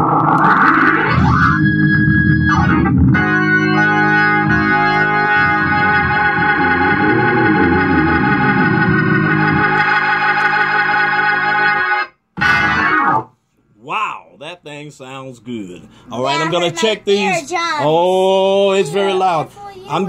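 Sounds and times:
organ chords: 0:00.0 - 0:13.4.

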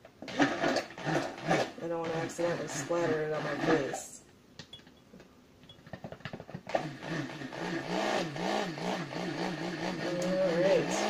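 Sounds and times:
stick blender running: 0:00.2 - 0:04.2, 0:06.7 - 0:11.0.

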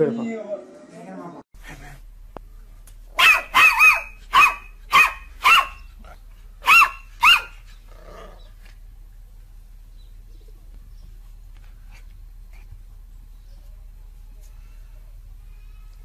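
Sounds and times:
puppy barking: 0:03.2 - 0:07.7.

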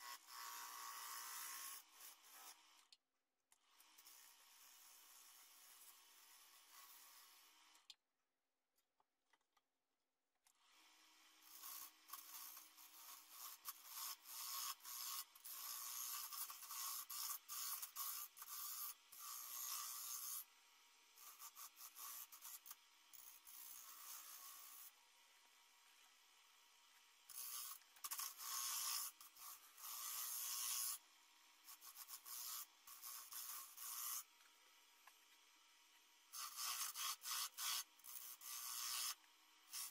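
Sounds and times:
lathe tool scraping wood: 0:27.3 - 0:31.0, 0:36.4 - 0:39.9.

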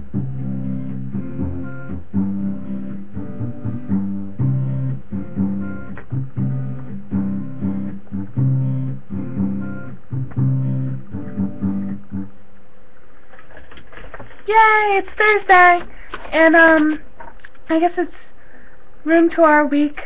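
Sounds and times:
acoustic guitar strumming chords: 0:00.0 - 0:12.4.

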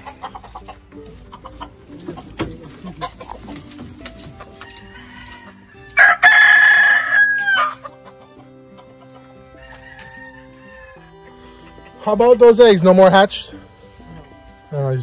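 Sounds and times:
rooster crowing: 0:04.6 - 0:07.9, 0:09.5 - 0:11.2.

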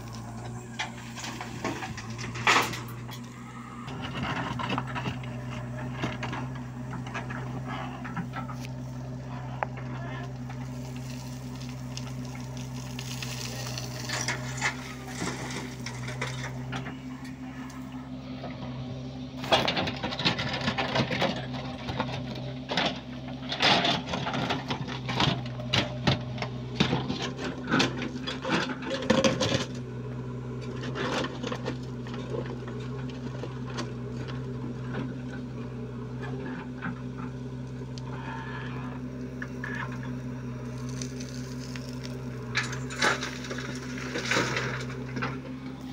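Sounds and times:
bucket scraping stony earth: 0:00.0 - 0:17.9, 0:19.4 - 0:22.0, 0:38.1 - 0:45.9
diesel engine running: 0:00.0 - 0:45.9.

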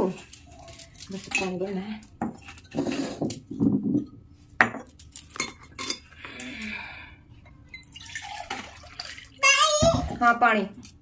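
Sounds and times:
pots knocking and clinking: 0:02.2 - 0:06.0
water pouring: 0:07.7 - 0:09.6.

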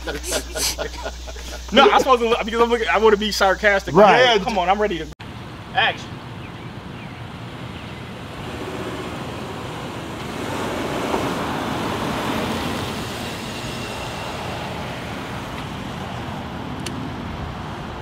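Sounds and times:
road traffic noise: 0:00.0 - 0:18.0
vehicle passing: 0:05.2 - 0:18.0.

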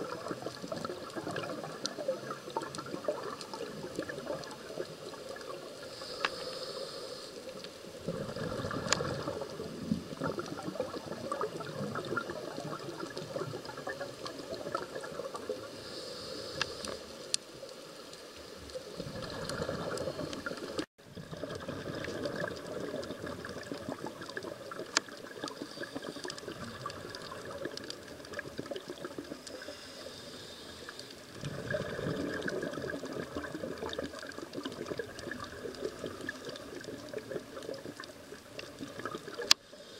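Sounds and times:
exhaled bubbles underwater: 0:00.0 - 0:06.2, 0:07.8 - 0:15.8, 0:18.7 - 0:30.0, 0:31.3 - 0:39.6
regulator inhale hiss: 0:05.7 - 0:08.0, 0:15.4 - 0:20.8, 0:25.4 - 0:26.6, 0:29.4 - 0:31.4, 0:39.5 - 0:39.9.

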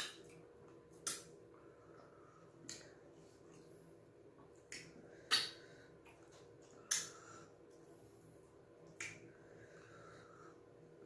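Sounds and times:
mouth eating noises: 0:04.6 - 0:07.2.

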